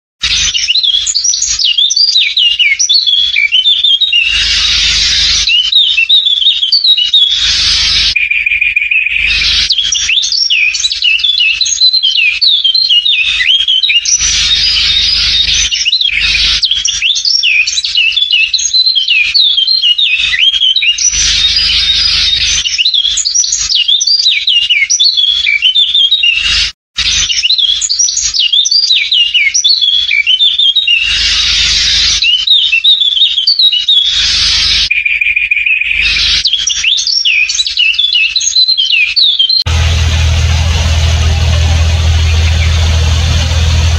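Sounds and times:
bursts of rushing noise: 39.7s - 43.9s.

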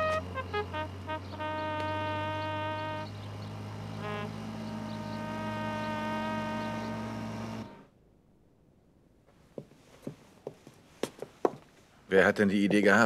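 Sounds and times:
trumpet holding long notes: 0.0s - 7.9s
motorboat engine drone: 0.0s - 8.0s.

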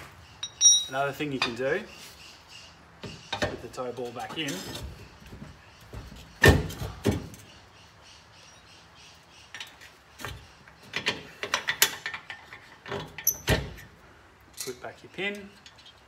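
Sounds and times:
metal knock with high ring: 0.4s - 1.0s
metallic knocks and rattles: 0.4s - 1.6s.

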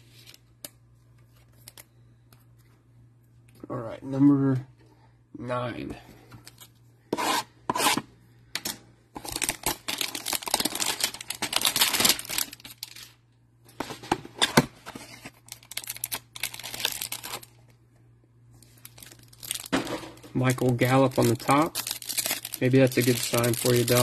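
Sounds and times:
cardboard box crinkling and tearing: 9.3s - 13.0s, 14.9s - 17.5s, 21.3s - 24.0s.

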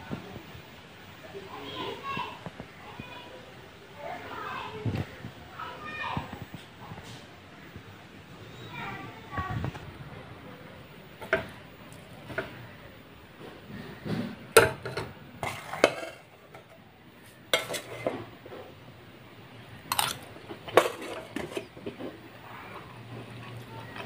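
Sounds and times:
metal spoon scraping and clinking: 14.8s - 16.7s, 17.5s - 18.2s, 19.9s - 21.9s.

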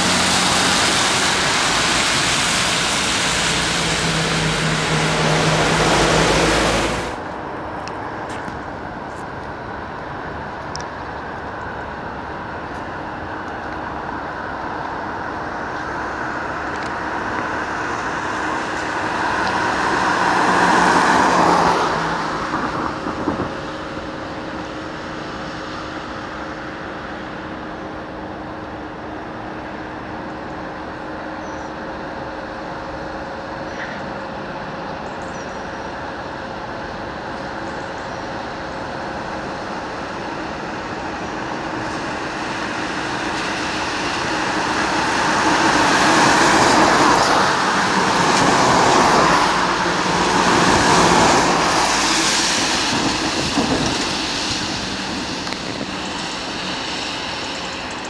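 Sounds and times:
vehicle engine and road noise: 0.0s - 58.0s
vehicles driving past: 0.0s - 58.0s.

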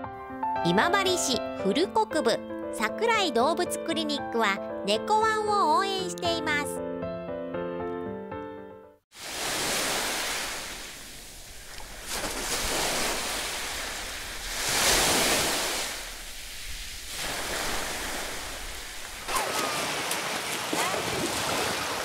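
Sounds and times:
sea surf washing in: 9.1s - 22.0s
swimmer splashing: 9.1s - 22.0s
feet running through shallow water: 11.6s - 22.0s.

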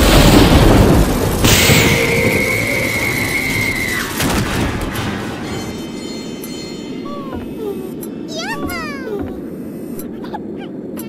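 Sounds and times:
high steady ringing tone: 5.4s - 8.3s.

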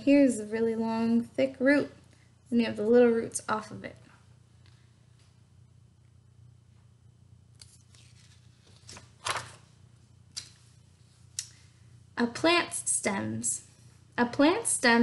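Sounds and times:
book pages rustling: 7.6s - 9.7s.

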